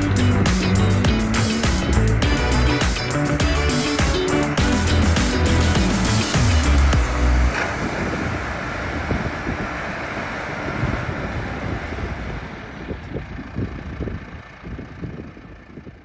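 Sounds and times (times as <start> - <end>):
tractor and baler running: 0.0 - 16.0
wind buffeting microphone: 7.0 - 16.0.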